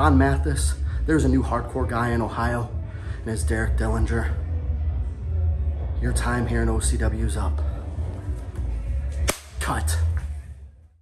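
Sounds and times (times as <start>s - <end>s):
low hum: 0.0s - 11.0s
sharp snap: 9.2s - 9.8s.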